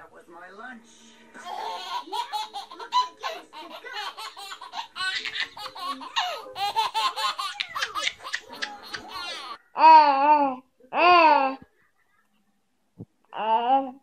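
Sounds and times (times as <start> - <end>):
baby laughing: 1.4 - 10.4.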